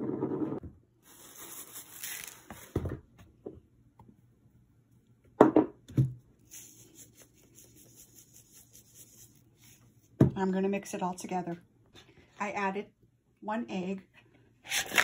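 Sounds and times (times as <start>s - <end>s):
spice jar shaking rattle: 6.5s - 9.8s.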